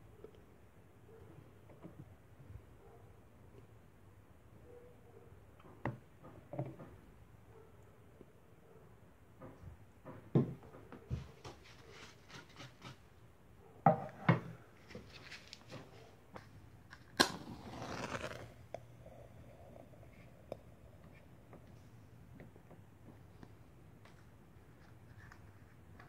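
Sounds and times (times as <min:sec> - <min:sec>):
match striking and flaring: 0:17.0 - 0:18.7.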